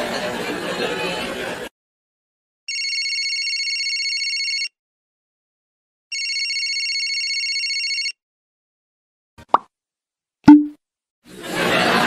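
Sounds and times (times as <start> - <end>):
telephone ringing: 2.7 - 4.7, 6.1 - 8.2.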